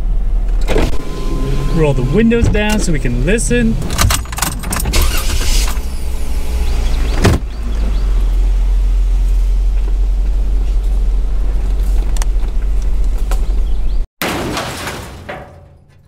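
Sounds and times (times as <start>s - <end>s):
engine road and wind rumble: 0.0s - 14.1s.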